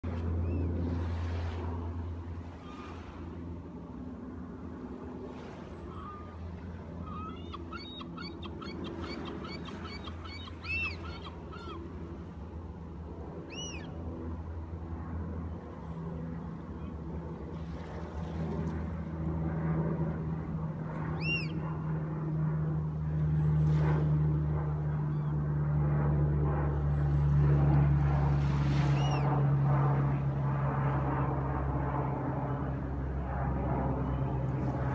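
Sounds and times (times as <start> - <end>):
airplane engine drone: 0.0 - 34.9
seagulls calling: 5.8 - 12.3, 13.4 - 14.0, 21.1 - 21.9.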